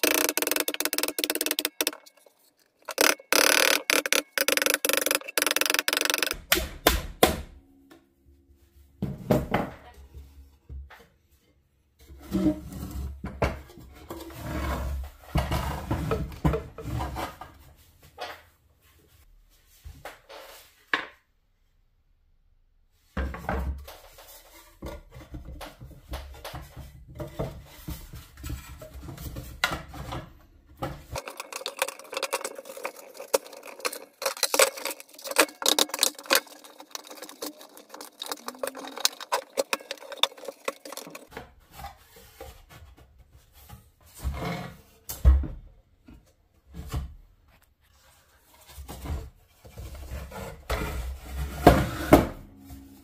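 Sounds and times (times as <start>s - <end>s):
hard objects clicking and clattering: 0.0s - 6.6s, 31.0s - 41.4s.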